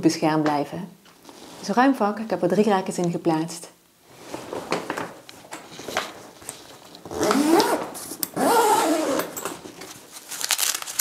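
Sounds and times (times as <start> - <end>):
fabric rustling: 4.0 - 11.0
zipper being pulled: 7.1 - 9.6.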